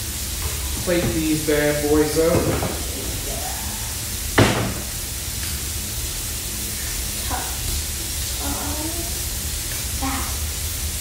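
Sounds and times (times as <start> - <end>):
low background hum: 0.0 - 11.0
cabinet door shutting knock: 0.8 - 1.5, 2.1 - 3.2, 4.4 - 5.0.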